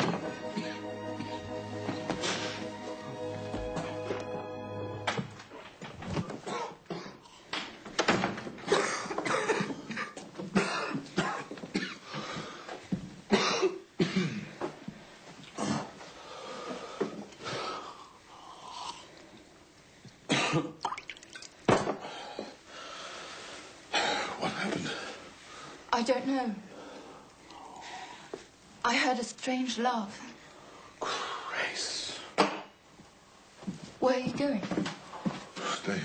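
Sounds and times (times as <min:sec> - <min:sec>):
person coughing: 0:06.4 - 0:07.2, 0:08.7 - 0:12.0, 0:13.3 - 0:14.5, 0:20.3 - 0:20.8
throat clearing: 0:06.4 - 0:07.2
hard breathing: 0:12.0 - 0:12.9.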